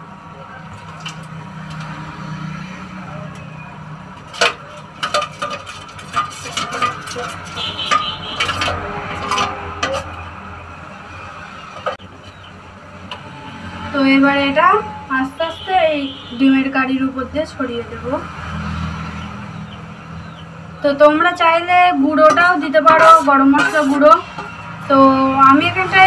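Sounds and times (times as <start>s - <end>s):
spoon clinking against metal container: 4.4s - 10.1s.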